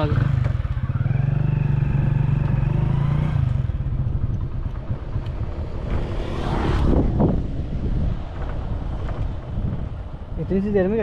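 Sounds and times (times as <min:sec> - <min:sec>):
vehicle engine driving off: 0:00.0 - 0:07.8
rushing sound: 0:05.0 - 0:10.0.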